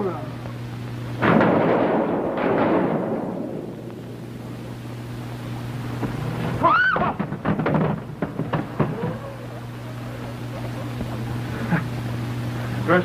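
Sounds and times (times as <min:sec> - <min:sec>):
low steady hum: 0:00.0 - 0:13.0
noisy rumble: 0:00.0 - 0:13.0
knocks and clatter: 0:01.2 - 0:04.5, 0:06.0 - 0:09.2.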